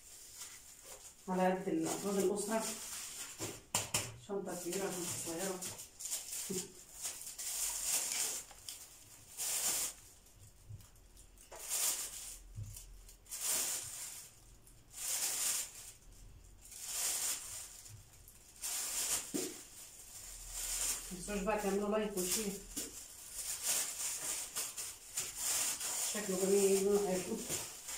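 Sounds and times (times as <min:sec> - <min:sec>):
plastic bag rustling and crinkling: 0:00.0 - 0:27.9.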